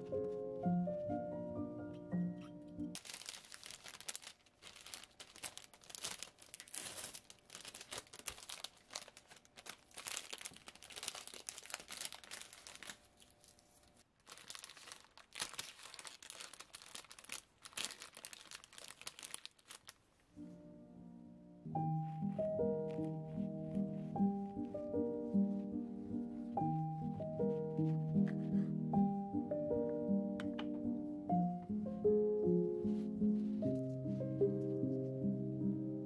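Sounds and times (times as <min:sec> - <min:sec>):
dry crackling and crinkling: 0:02.4 - 0:20.4, 0:22.0 - 0:28.7.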